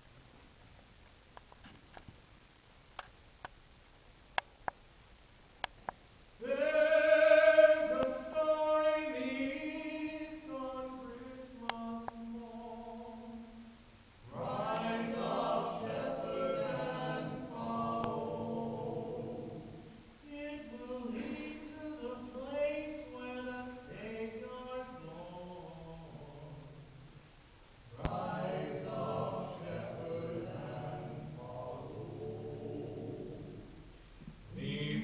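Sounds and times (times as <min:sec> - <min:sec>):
vocal ensemble singing a cappella: 0:06.4 - 0:27.2, 0:27.9 - 0:35.0.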